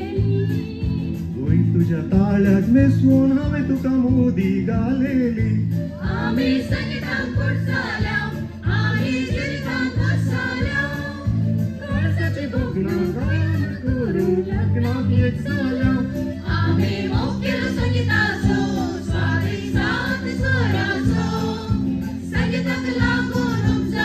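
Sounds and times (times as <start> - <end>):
group singing into microphones: 5.4 - 13.8, 14.4 - 24.0.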